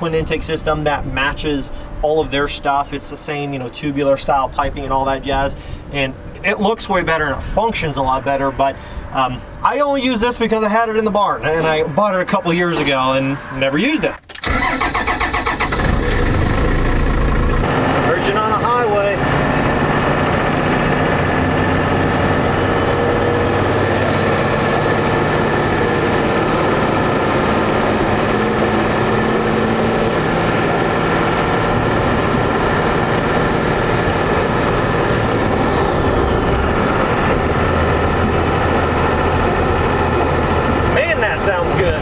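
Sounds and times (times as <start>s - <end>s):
diesel engine drone: 0.0s - 42.0s.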